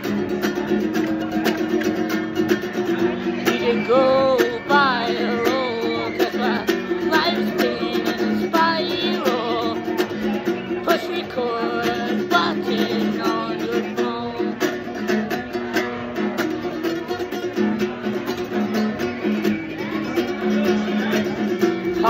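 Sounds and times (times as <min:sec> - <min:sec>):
acoustic guitar strumming: 0:00.0 - 0:22.0
man singing: 0:03.3 - 0:14.8.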